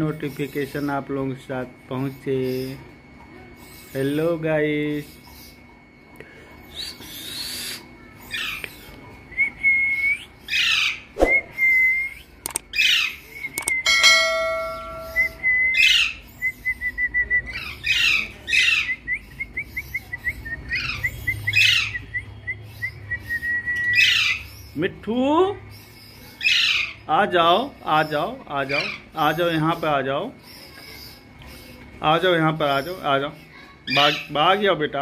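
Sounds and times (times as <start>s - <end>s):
parakeets calling: 0.0s - 2.9s, 3.5s - 5.9s, 6.6s - 8.9s, 10.3s - 11.2s, 12.3s - 16.6s, 17.5s - 35.0s
thin steady whistling tone: 1.9s - 8.1s, 8.7s - 10.6s, 11.2s - 12.4s, 13.1s - 17.9s, 18.8s - 24.8s
short electronic chime: 13.9s - 15.5s.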